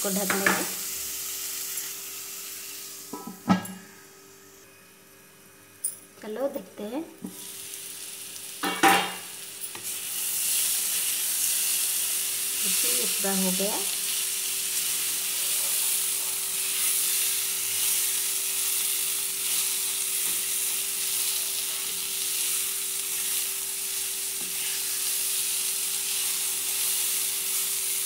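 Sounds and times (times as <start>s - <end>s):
food sizzling in a pan: 0.0s - 5.8s, 7.2s - 28.0s.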